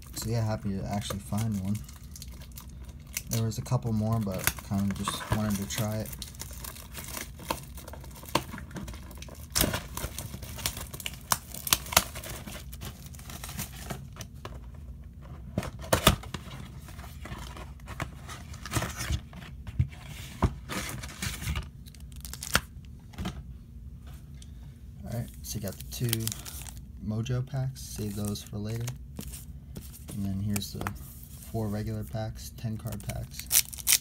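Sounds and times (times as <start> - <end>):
packaging tearing and crinkling: 0.9 - 14.2, 20.7 - 22.7, 25.4 - 26.8, 32.8 - 34.0.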